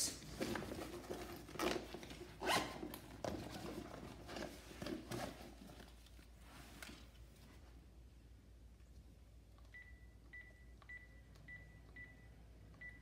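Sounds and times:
zipper rasping: 2.4s - 3.0s.

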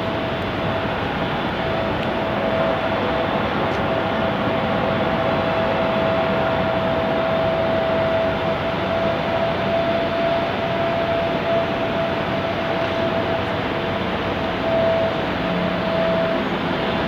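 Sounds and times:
constant whining tone: 0.0s - 17.0s
steady hiss and rumble: 0.0s - 17.0s.

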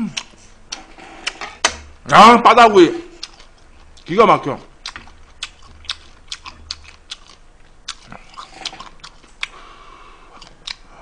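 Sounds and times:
person chewing with wet clicks: 0.1s - 1.4s, 3.2s - 9.6s, 10.3s - 10.9s.

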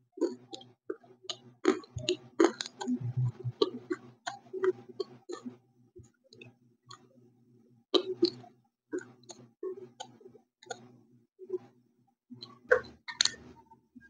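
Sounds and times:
crunchy chewing: 0.2s - 0.7s, 1.3s - 5.5s, 8.0s - 8.4s.

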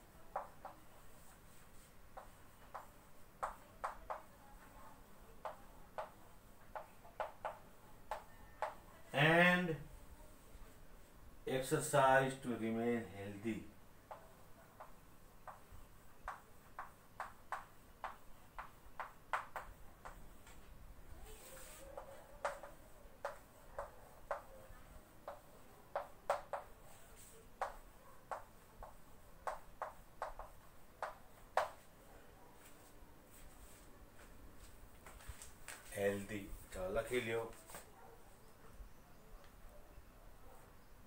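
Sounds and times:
chalk tapping on a chalkboard: 0.3s - 4.3s, 5.4s - 8.8s, 14.1s - 20.6s, 21.3s - 24.6s, 25.2s - 31.9s.

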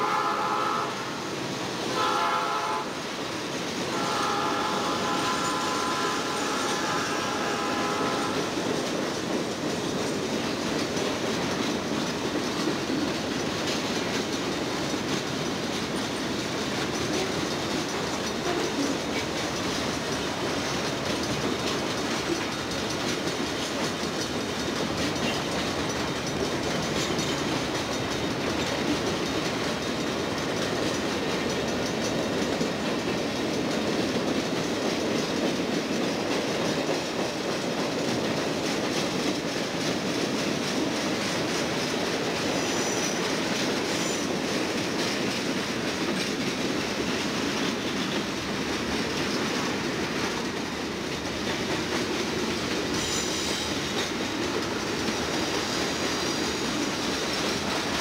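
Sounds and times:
locomotive air horn: 0.0s - 1.2s, 1.9s - 3.0s, 3.9s - 8.5s
freight train rumble and wheel clatter: 0.0s - 58.0s.

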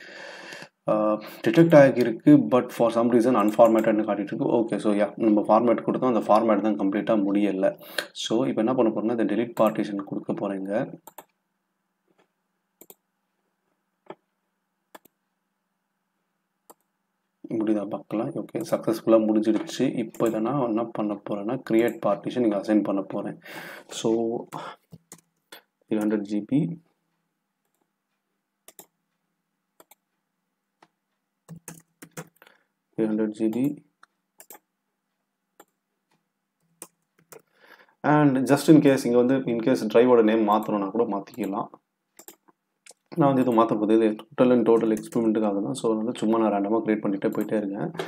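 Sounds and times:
computer mouse clicks: 3.4s - 4.0s, 11.0s - 11.4s, 12.2s - 13.0s, 14.9s - 15.2s, 16.7s - 16.9s, 20.1s - 20.4s, 24.9s - 26.2s, 28.6s - 29.0s, 29.8s - 30.1s, 30.8s - 32.4s, 33.5s - 34.7s, 35.6s - 37.5s, 42.2s - 45.3s, 47.2s - 48.0s.

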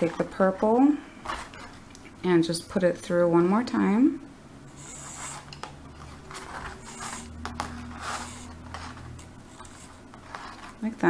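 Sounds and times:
cord rubbing and scraping: 4.7s - 11.0s.

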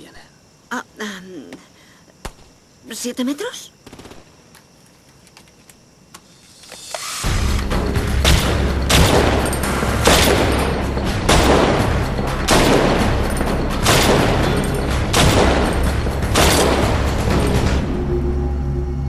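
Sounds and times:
soundtrack music with low drone: 7.0s - 19.0s
pistol gunshots: 8.2s - 17.4s.

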